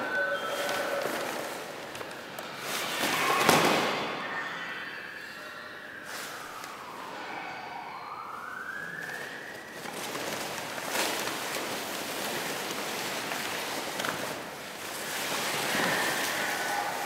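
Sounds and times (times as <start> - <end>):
siren-like tone: 0.0 - 1.6, 3.1 - 11.3, 15.1 - 17.0
rushing noise with crackles: 9.0 - 17.0.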